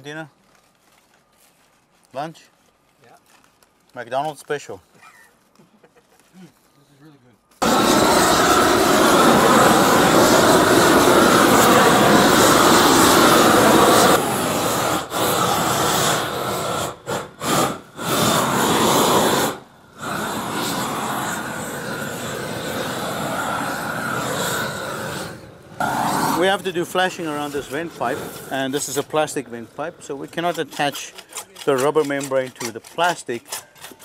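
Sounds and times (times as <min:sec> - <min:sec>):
roofing torch flame rushing: 0:07.6 - 0:31.8.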